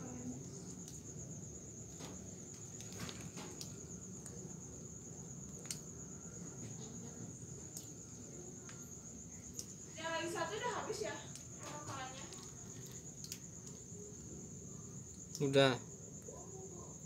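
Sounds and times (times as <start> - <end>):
insects trilling: 0.0 - 17.0
faint sharp clicks: 12.3 - 13.8.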